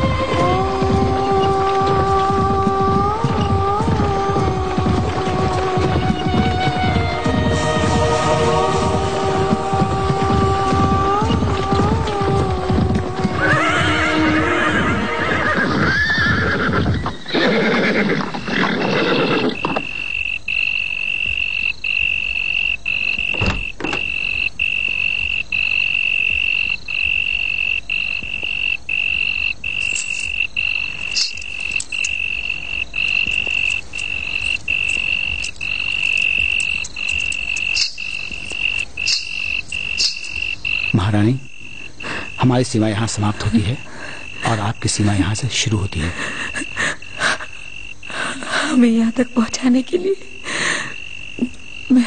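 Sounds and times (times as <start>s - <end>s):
music: 0.0s - 1.9s, 4.8s - 12.5s
horses neighing: 0.0s - 20.2s, 29.0s - 48.7s
hooves clip-clopping: 0.0s - 48.7s.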